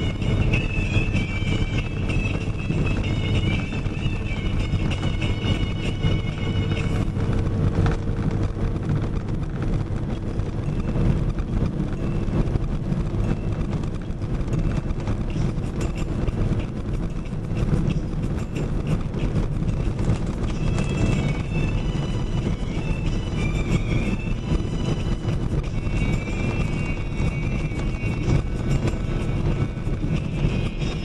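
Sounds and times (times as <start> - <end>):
truck engine and road noise: 0.0 - 31.0.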